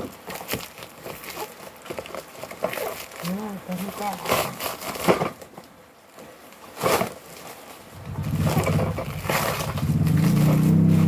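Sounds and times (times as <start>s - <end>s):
plastic wrapping crinkling: 0.0s - 11.0s
low engine drone: 8.0s - 11.0s.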